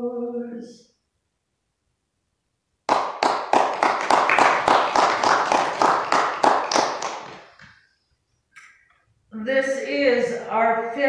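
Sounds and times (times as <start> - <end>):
rhythmic hand clapping: 2.9 - 7.7.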